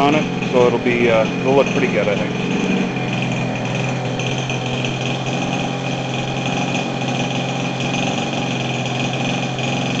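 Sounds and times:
model airplane engine running: 0.0 - 10.0.

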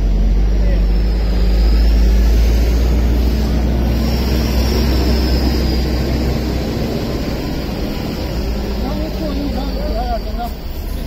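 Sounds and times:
car engine idling: 3.6 - 11.0.

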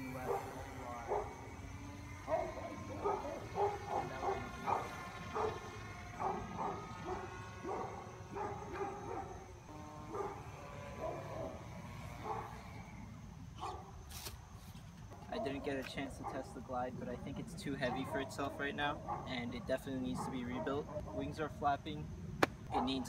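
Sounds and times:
dog yipping: 2.3 - 5.6.

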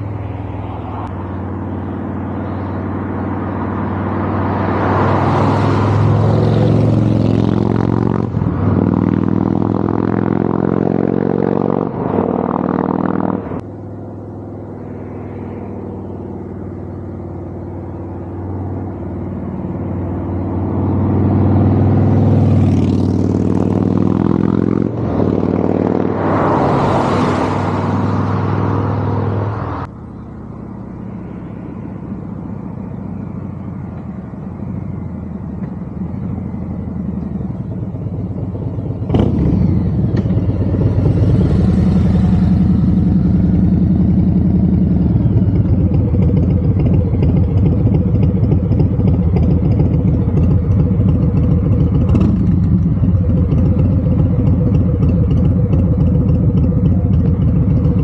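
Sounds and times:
loud vehicle passing by: 0.0 - 58.0
motorcycle engine idling: 33.2 - 58.0.

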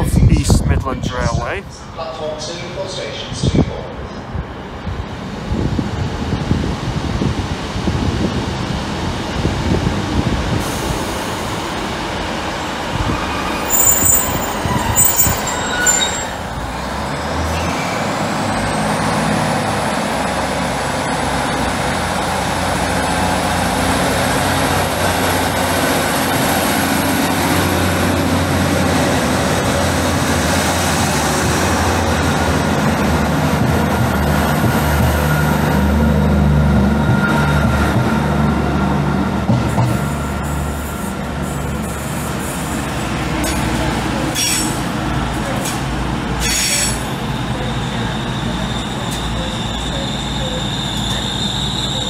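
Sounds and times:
wind buffeting microphone: 0.0 - 1.8, 3.3 - 11.1
low hum of train engines: 0.0 - 52.0
train high whine: 6.8 - 52.0
brief high squeals: 13.6 - 16.4, 48.0 - 52.0.

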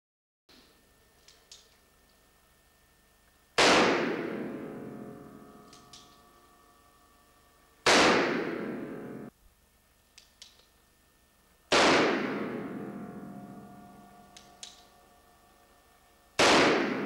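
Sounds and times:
revolver shots with echo: 3.6 - 5.4, 7.8 - 9.3, 11.7 - 13.7, 16.4 - 17.0.

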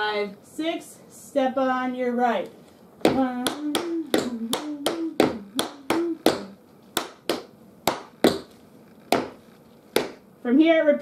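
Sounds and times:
tap shoes clicking on floor: 3.0 - 10.2.

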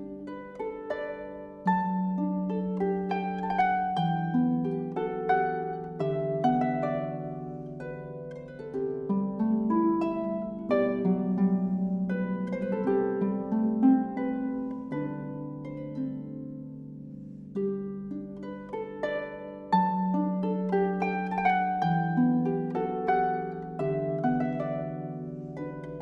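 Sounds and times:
harp playing plucked notes: 0.0 - 26.0.

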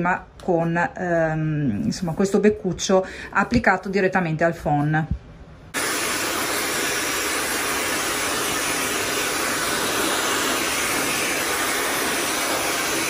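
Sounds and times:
hair dryer blowing: 5.8 - 13.0.

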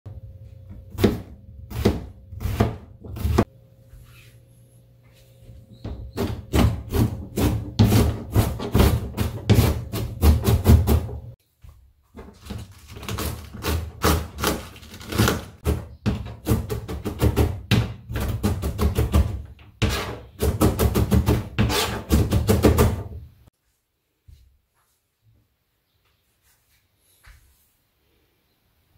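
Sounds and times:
rapid knife chopping: 1.0 - 3.5, 6.2 - 11.1, 13.1 - 23.0.

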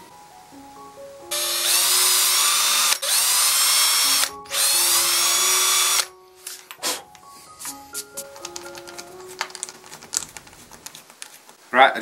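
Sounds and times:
cordless drill whining: 1.3 - 6.1.

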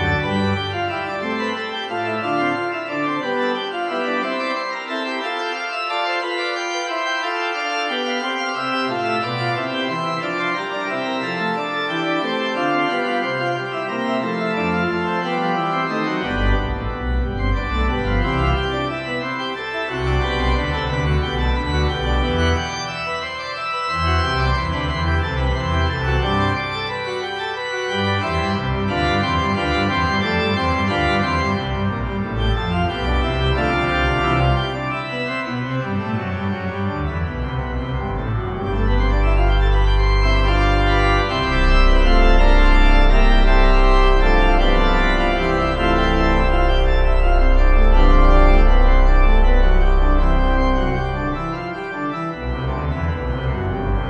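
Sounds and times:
deep organ pedal bass notes: 0.0 - 54.0
organ chords: 0.0 - 54.0.

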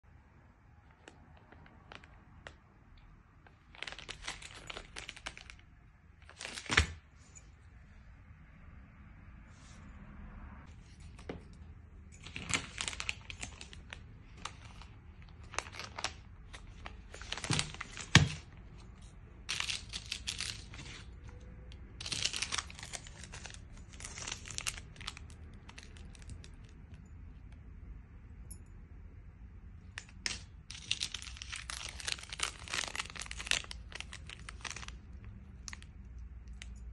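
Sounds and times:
foil sachets crinkling: 3.5 - 5.6, 12.2 - 18.6, 19.5 - 21.2, 22.0 - 26.8, 30.3 - 35.9.

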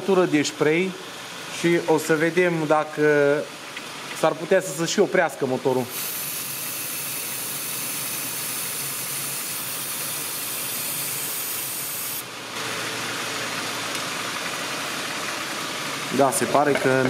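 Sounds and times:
aerosol can spraying hiss: 5.9 - 12.2.

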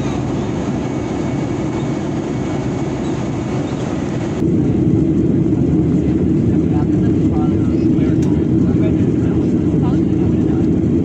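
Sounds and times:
airliner cabin engine rumble: 0.0 - 11.0.

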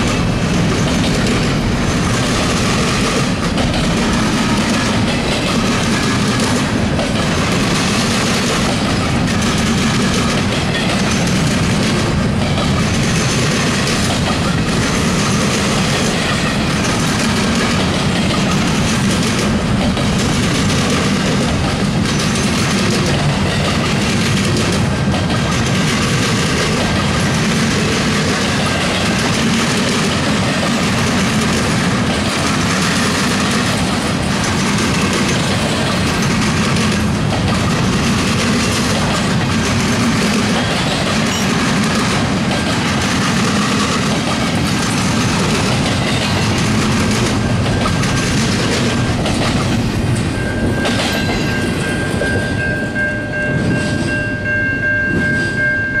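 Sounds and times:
train wheels clattering over rails: 0.0 - 55.6
crossing bell ringing: 10.4 - 19.1, 34.1 - 43.0, 46.1 - 56.0.

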